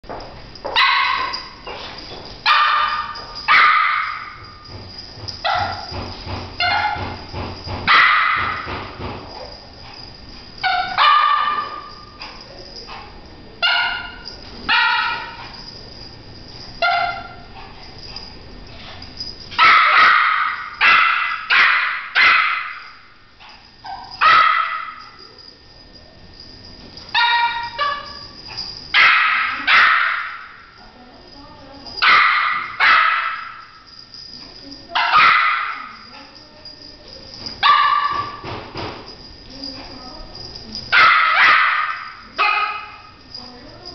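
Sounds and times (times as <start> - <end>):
dog barking: 0.7 - 1.6, 2.4 - 4.6, 5.4 - 6.0, 6.6 - 7.2, 7.9 - 8.7, 10.6 - 15.7, 16.8 - 18.3, 19.6 - 22.9, 23.8 - 25.2, 27.1 - 30.6, 32.0 - 33.7, 34.9 - 36.4, 37.5 - 38.5, 40.9 - 43.2.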